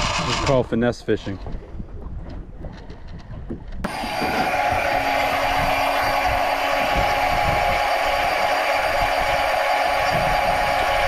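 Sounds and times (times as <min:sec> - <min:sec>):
fishing reel motor whining: 0:00.0 - 0:00.6, 0:03.8 - 0:11.0.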